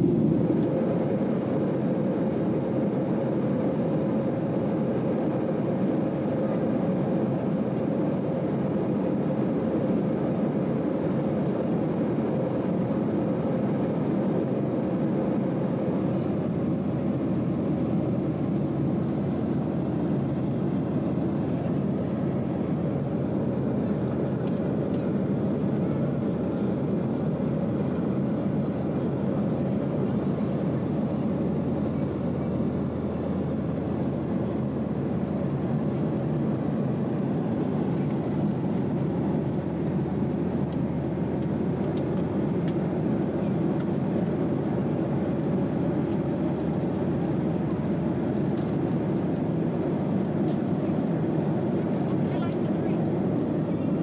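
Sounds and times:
airplane cabin engine hum: 0.0 - 54.0.

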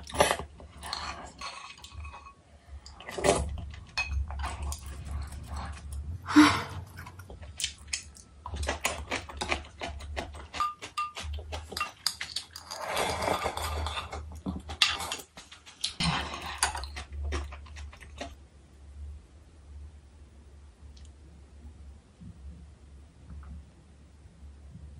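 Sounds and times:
wet chewing and smacking: 2.8 - 18.4
slurping and swallowing: 6.7 - 18.4
chopsticks clinking on bowl: 10.4 - 12.5.

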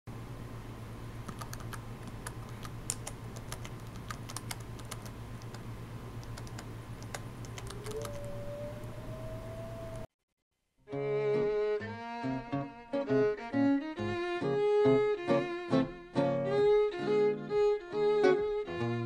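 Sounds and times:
low steady hum: 0.1 - 10.1
keyboard key clicks: 1.3 - 5.6, 6.2 - 8.2
held note sliding up: 7.6 - 10.1.

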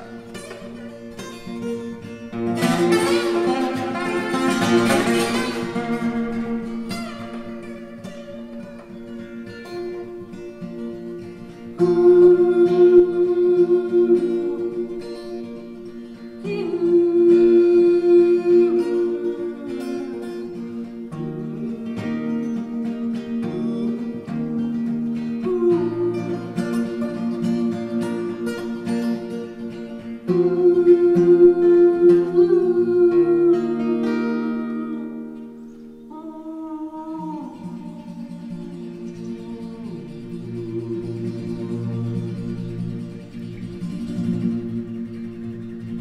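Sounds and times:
held chords: 0.0 - 46.0
plucked acoustic guitar: 0.0 - 46.0
voice humming: 11.8 - 15.8, 30.3 - 35.2, 36.1 - 45.0.

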